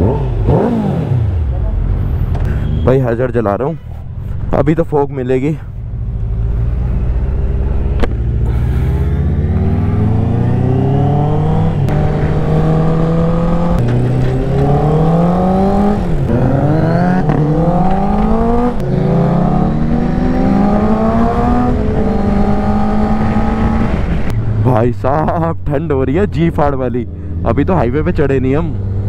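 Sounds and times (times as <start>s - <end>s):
motorcycle accelerating through gears: 0.0s - 2.8s, 5.9s - 24.7s, 28.4s - 29.0s.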